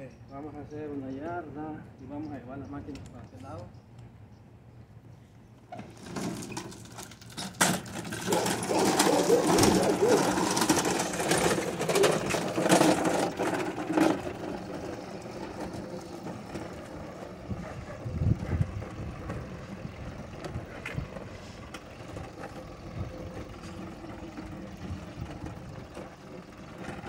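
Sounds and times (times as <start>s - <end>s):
push mower rattling on concrete: 5.7s - 27.0s.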